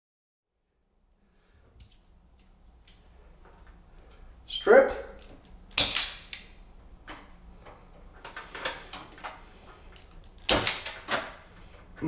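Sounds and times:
wire stripper jaws clicking: 5.2s - 6.5s, 10.0s - 11.4s.

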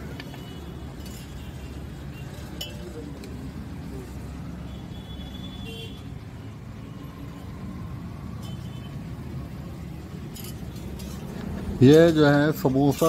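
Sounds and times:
low rumble of road traffic: 0.0s - 13.0s.

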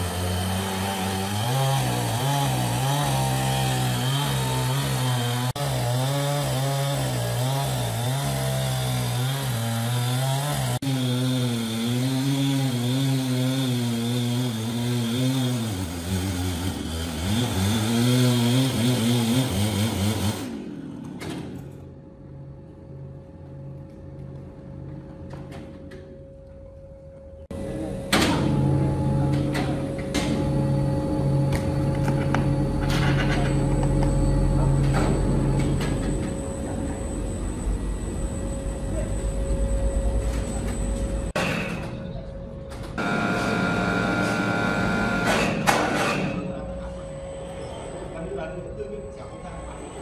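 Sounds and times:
chainsaw cutting log: 0.0s - 20.6s, 43.0s - 46.4s.

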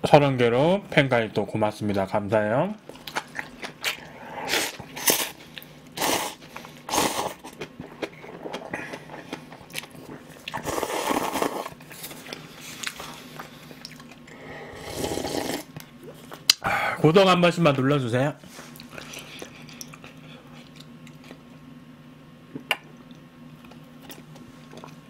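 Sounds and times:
person chewing: 2.9s - 16.6s, 18.6s - 21.6s, 22.5s - 25.0s
person sipping broth: 3.4s - 16.2s
person slurping noodles: 3.9s - 5.4s, 6.0s - 7.5s, 10.5s - 11.8s, 14.4s - 15.7s.

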